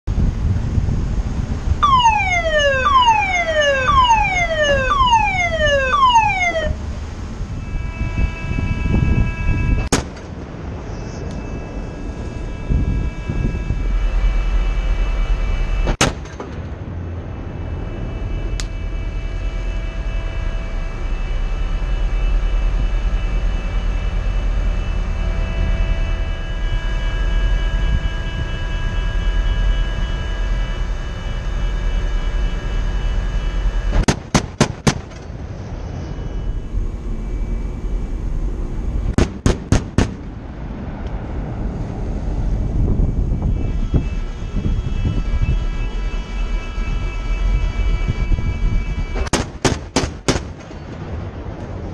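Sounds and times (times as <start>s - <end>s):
low rumble: 0.0s - 34.1s, 34.9s - 49.3s
faint whine: 0.8s - 34.1s, 35.0s - 49.3s
naval gun firing: 16.0s - 16.6s, 34.0s - 35.2s, 39.2s - 40.3s, 49.3s - 50.7s.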